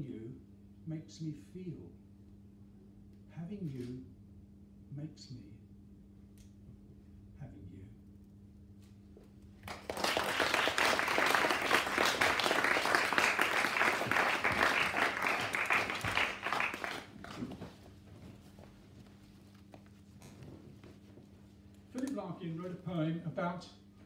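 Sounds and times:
small audience clapping: 0:09.6 - 0:18.0.

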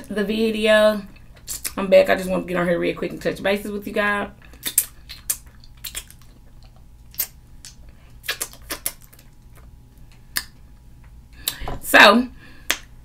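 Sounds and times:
wet mouth smacks: 0:04.5 - 0:10.6.

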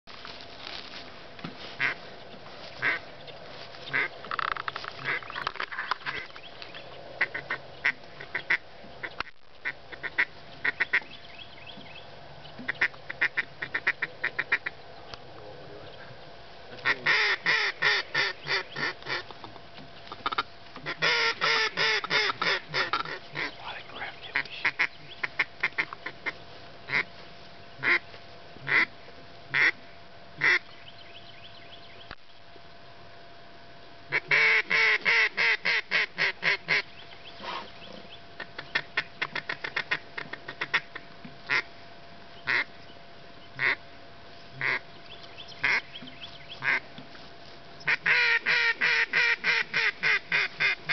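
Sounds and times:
duck and goose calls: 0:01.7 - 0:03.1, 0:03.8 - 0:06.4, 0:07.2 - 0:11.2, 0:12.6 - 0:14.8, 0:16.7 - 0:19.3, 0:20.1 - 0:27.1, 0:27.8 - 0:28.9, 0:29.5 - 0:29.8, 0:30.4 - 0:30.7, 0:34.1 - 0:41.7, 0:42.4 - 0:42.7, 0:43.6 - 0:43.8, 0:44.6 - 0:44.8, 0:45.4 - 0:46.9, 0:47.8 - 0:50.9.

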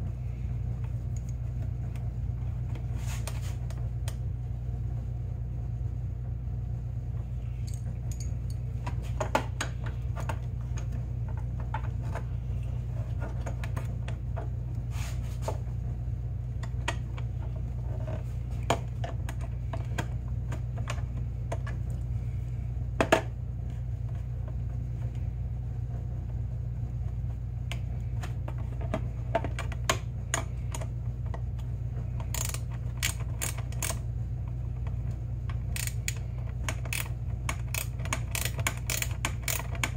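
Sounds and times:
steady low hum: 0:00.0 - 0:39.9
wrench clicking and clinking: 0:07.6 - 0:08.6, 0:32.3 - 0:34.0, 0:35.8 - 0:36.2, 0:36.8 - 0:39.9.

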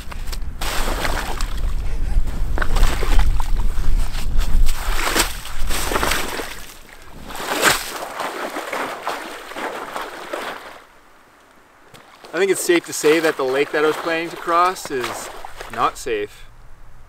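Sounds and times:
boots sloshing through slush: 0:00.6 - 0:01.8, 0:02.6 - 0:10.9, 0:11.9 - 0:16.1.

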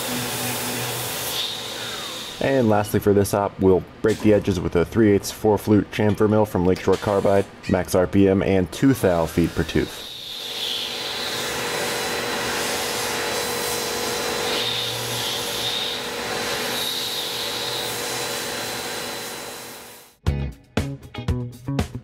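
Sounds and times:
milling machine spindle hum: 0:00.0 - 0:02.9, 0:08.9 - 0:20.1.

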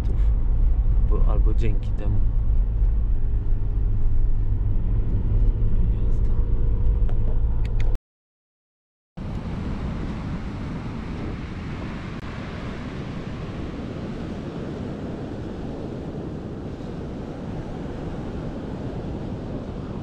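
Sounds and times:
ocean surf breaking: 0:09.2 - 0:20.0
wind buffeting microphone: 0:09.2 - 0:20.0.

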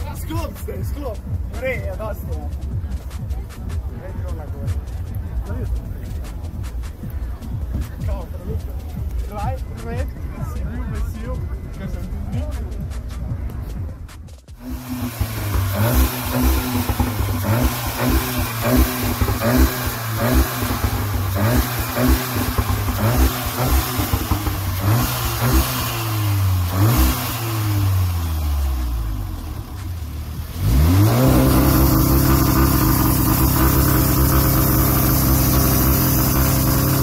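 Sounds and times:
car engine revving: 0:14.5 - 0:37.0.

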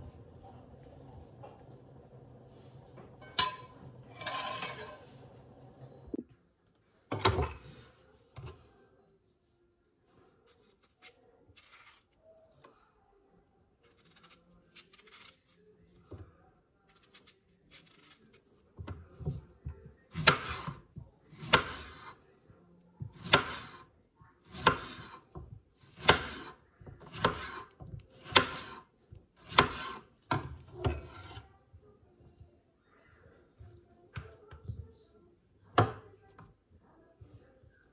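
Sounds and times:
knife cutting on a board: 0:20.1 - 0:22.1, 0:23.1 - 0:23.8, 0:24.5 - 0:25.2, 0:25.8 - 0:28.8, 0:29.4 - 0:31.5.

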